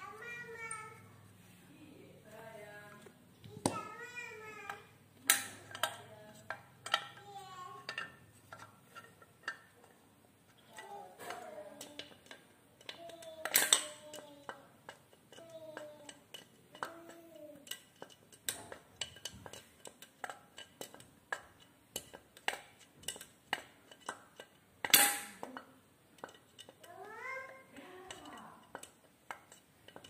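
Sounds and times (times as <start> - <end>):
pliers clicking on metal: 11.8 - 15.4, 28.1 - 30.0.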